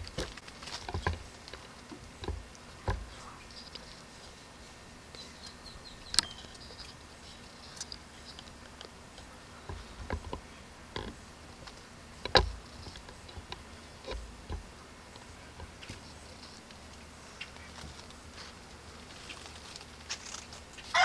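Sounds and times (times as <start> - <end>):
birds twittering: 0.0 - 20.0
sharp clicks: 5.1 - 7.0.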